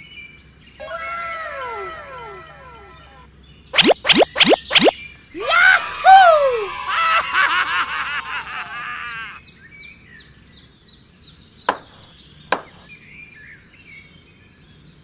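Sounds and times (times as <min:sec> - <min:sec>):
birds chirping: 0:00.5 - 0:05.3, 0:11.4 - 0:13.1
cartoon warbling chatter: 0:01.7 - 0:04.9.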